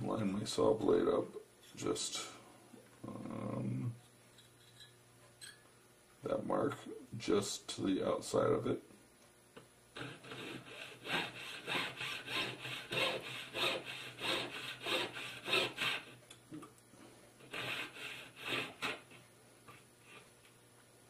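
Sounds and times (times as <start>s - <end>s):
saw rasping through metal: 10.0s - 16.2s, 17.4s - 19.2s.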